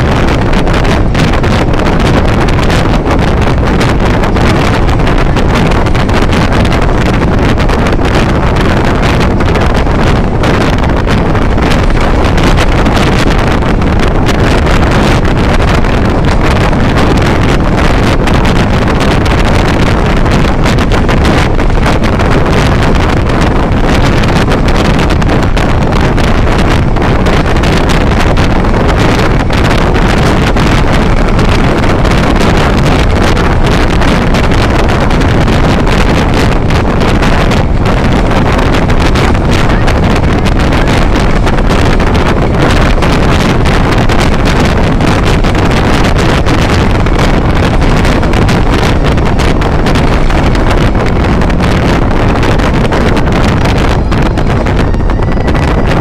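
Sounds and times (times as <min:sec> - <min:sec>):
vehicle road noise in tunnel: 0:00.0 - 0:56.0
wind buffeting microphone: 0:00.0 - 0:56.0.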